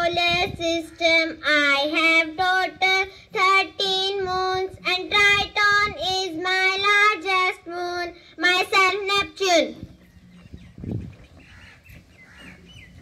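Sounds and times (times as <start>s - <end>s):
child singing: 0.0s - 9.8s.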